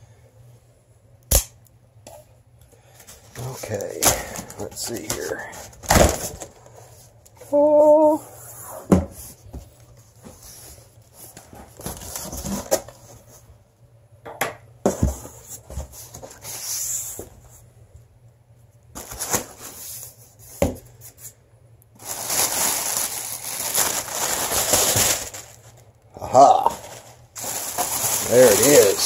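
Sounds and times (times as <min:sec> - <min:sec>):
plastic wrapping rustling: 0:03.1 - 0:07.2, 0:19.0 - 0:20.4, 0:22.0 - 0:29.0.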